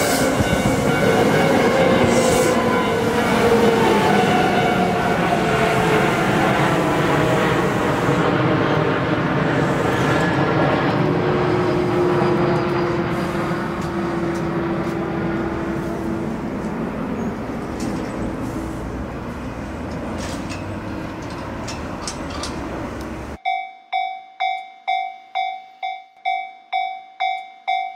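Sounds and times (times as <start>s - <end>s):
electric train rumbling past: 0.0s - 23.5s
level crossing bell dinging: 23.4s - 27.9s.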